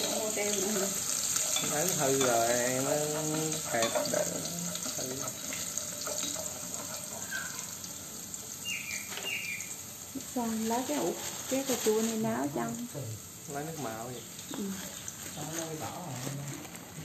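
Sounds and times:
chopsticks stirring a pot: 0.0 - 7.9, 13.8 - 17.0
food cooking hiss: 0.0 - 17.0.

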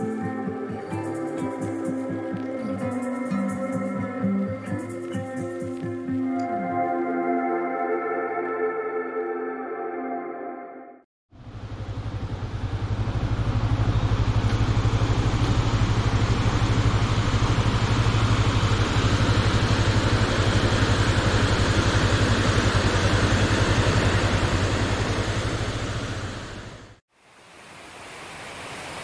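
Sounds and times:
motorcycle engine running: 11.3 - 27.0.

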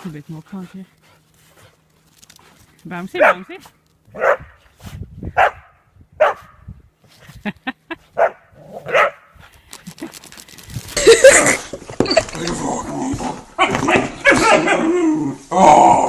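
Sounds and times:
dogs barking: 3.2 - 4.6, 5.4 - 6.6, 8.2 - 9.3, 13.6 - 15.0
rough dog noise: 12.8 - 15.4.

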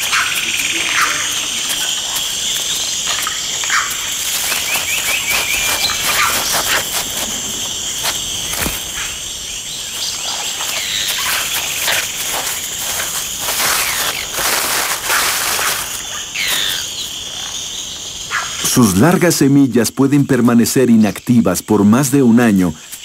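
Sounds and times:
rustling in dry leaf litter: 0.0 - 17.8
high insect drone: 0.0 - 23.0
short bird calls and chirps: 0.1 - 6.9, 15.9 - 18.7.

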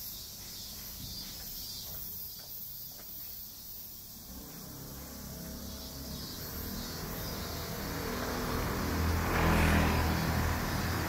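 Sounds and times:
car driving past: 4.2 - 11.0.

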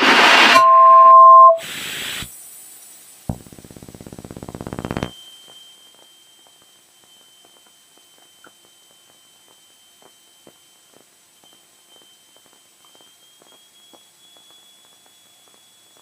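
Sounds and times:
thin steady high whine: 0.0 - 16.0
small clicks and crackles: 3.4 - 9.7.

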